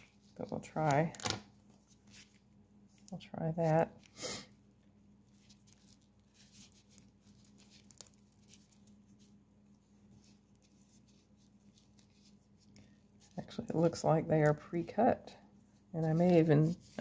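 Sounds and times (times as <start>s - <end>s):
low steady hum: 0.0s - 17.0s
light scratchy rustles: 15.7s - 17.0s.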